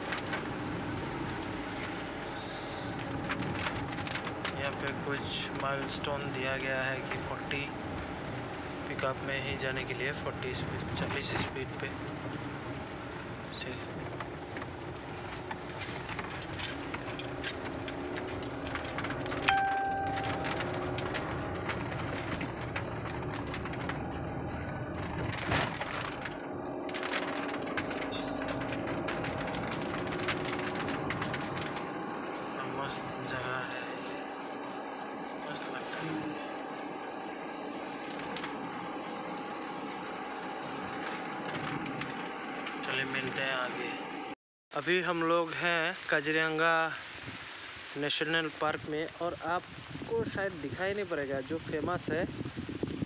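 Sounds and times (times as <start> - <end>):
rain ticking on glass: 0.0 - 43.8, 45.0 - 52.9
car road noise on wet road: 0.0 - 44.4, 45.0 - 53.0
short ringing tone: 19.5 - 20.9.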